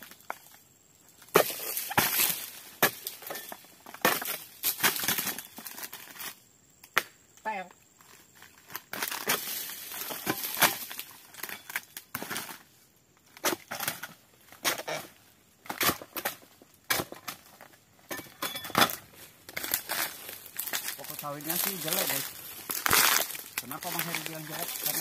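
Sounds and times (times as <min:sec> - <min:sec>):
dry fronds rustling: 0:01.1 - 0:06.4, 0:08.0 - 0:18.0, 0:18.8 - 0:25.0
blade chopping palm fronds: 0:01.3 - 0:05.4, 0:08.7 - 0:12.6, 0:13.3 - 0:17.5, 0:18.8 - 0:25.0.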